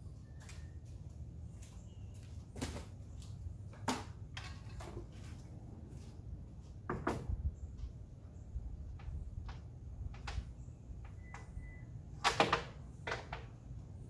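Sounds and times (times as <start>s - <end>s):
objects knocking and clunking: 3.6s - 5.4s, 6.8s - 7.4s.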